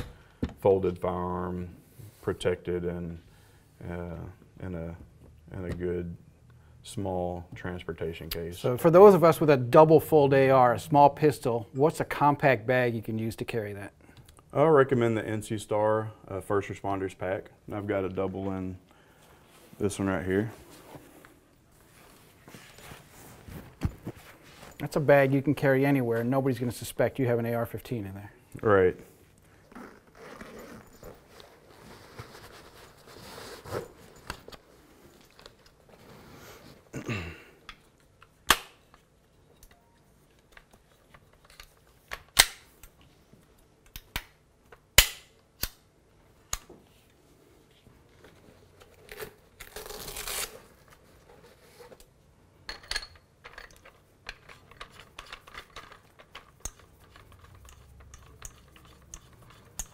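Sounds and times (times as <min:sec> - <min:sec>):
bag handling noise: 0:29.7 - 0:37.3
sharp metallic clicks and snaps: 0:43.8 - 0:45.9.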